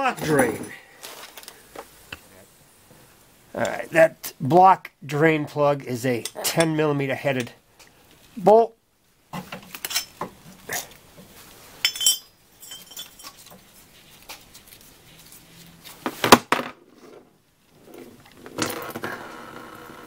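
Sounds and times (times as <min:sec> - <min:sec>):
metal tools clinking on metal: 0:00.0 - 0:00.8, 0:09.7 - 0:10.3, 0:11.8 - 0:13.6.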